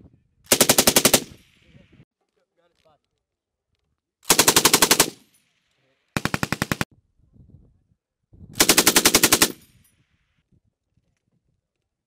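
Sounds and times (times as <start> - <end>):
machine gun firing bursts: 0.5 - 1.3, 4.3 - 5.2, 6.2 - 6.9, 8.6 - 9.6.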